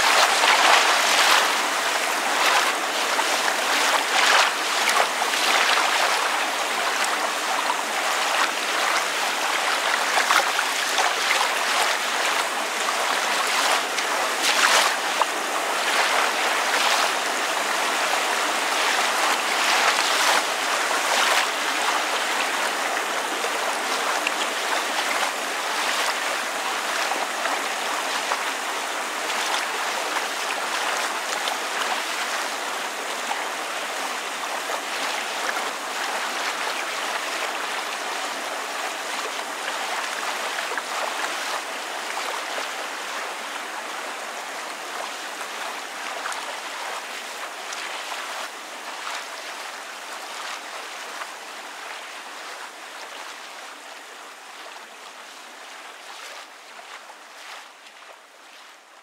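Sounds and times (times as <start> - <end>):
rain falling: 0.0 - 28.5
water lapping: 0.0 - 59.0.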